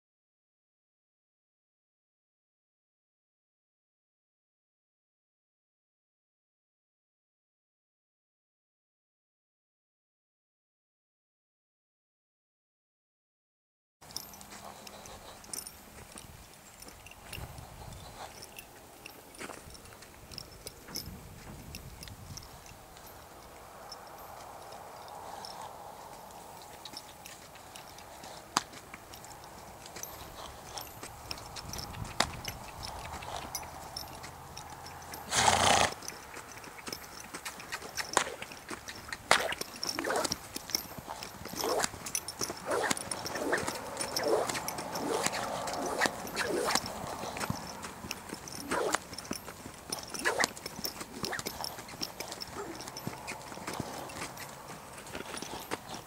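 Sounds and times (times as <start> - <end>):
hooves on soft sand: 14.0 - 56.0.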